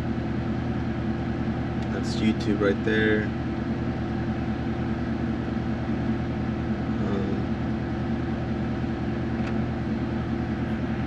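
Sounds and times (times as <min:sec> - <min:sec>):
air-conditioning fan hissing: 0:00.0 - 0:11.0.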